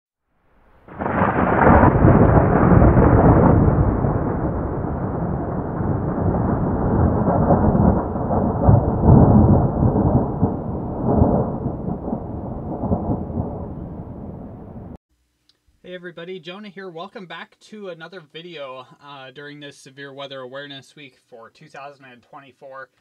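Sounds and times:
rolling thunder: 0:00.5 - 0:15.0.

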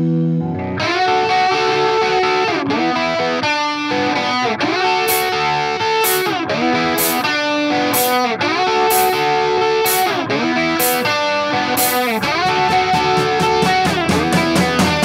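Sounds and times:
electric guitar bending notes: 0:00.0 - 0:15.0
short bright high tap: 0:05.1 - 0:05.4, 0:06.0 - 0:06.4, 0:07.0 - 0:07.4, 0:08.0 - 0:08.3, 0:09.9 - 0:10.2, 0:10.8 - 0:11.2, 0:11.8 - 0:14.0.

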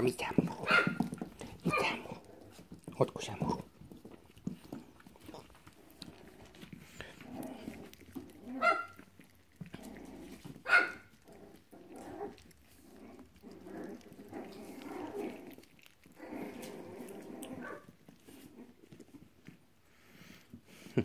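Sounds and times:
puppies growling: 0:00.0 - 0:21.0
puppy yelps: 0:00.7 - 0:01.0, 0:08.4 - 0:09.1, 0:10.6 - 0:11.1.

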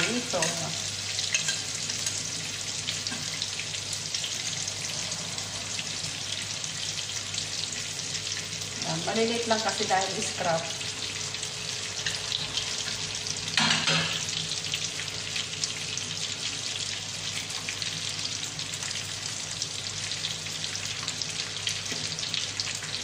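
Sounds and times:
sauce sizzling in frying pan: 0:00.0 - 0:23.0.

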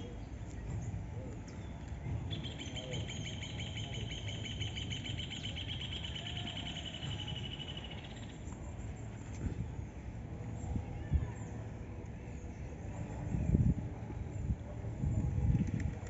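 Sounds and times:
bird trilling: 0:02.3 - 0:08.3.

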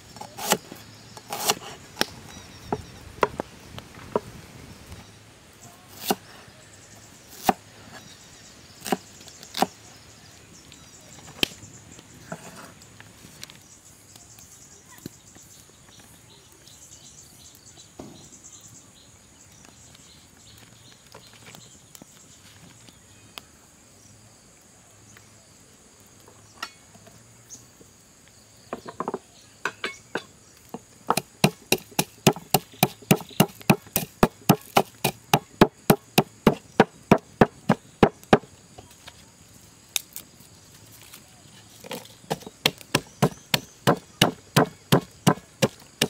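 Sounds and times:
cleaver chopping on wood: 0:31.1 - 0:38.5, 0:42.3 - 0:46.0.

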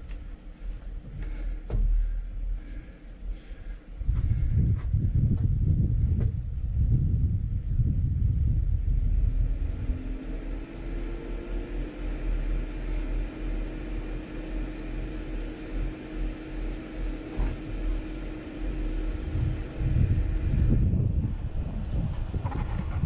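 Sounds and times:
faint mechanical drone: 0:00.0 - 0:23.0
wind buffeting microphone: 0:03.6 - 0:12.6, 0:16.6 - 0:23.0.

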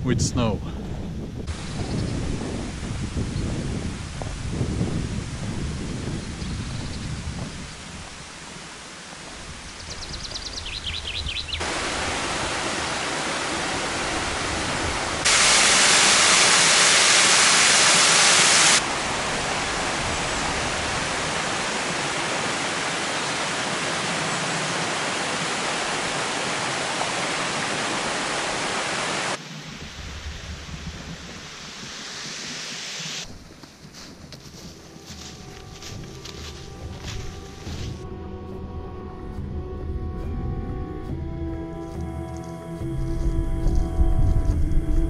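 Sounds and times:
stream rushing over stones: 0:11.6 - 0:33.3.

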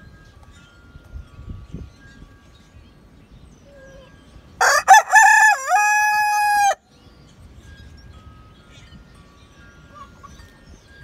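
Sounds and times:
rooster crowing: 0:04.6 - 0:06.8.

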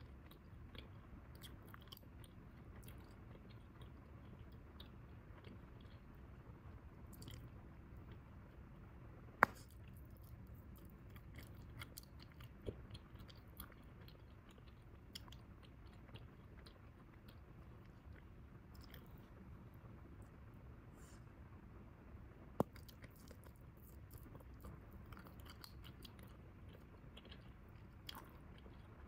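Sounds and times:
gum snap: 0:09.4 - 0:09.8
gum chewing clicks: 0:22.6 - 0:29.0.

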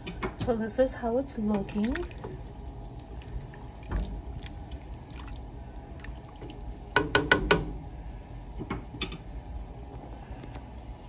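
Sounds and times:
soup stirred in a pot: 0:01.7 - 0:07.3.

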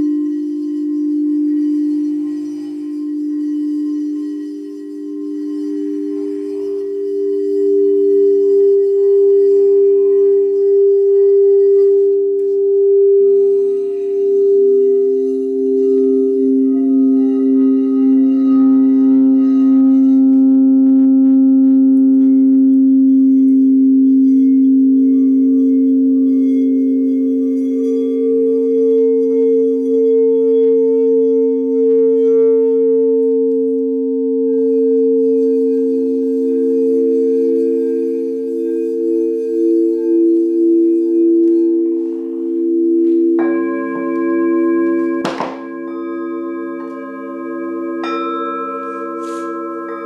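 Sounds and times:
crystal singing bowls ringing: 0:00.0 - 0:50.0.

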